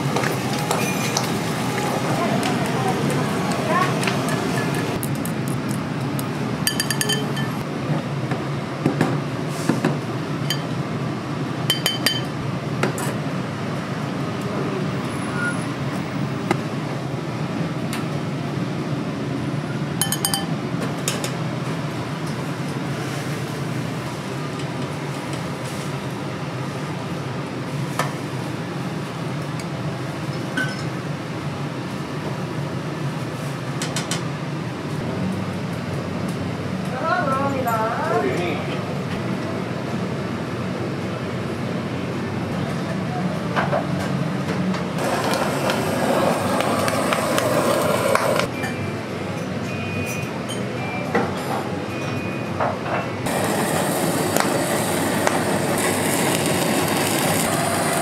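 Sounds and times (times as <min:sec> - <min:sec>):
dishes and utensils clinking: 0:06.6 - 0:07.6, 0:11.7 - 0:12.3, 0:20.0 - 0:20.5.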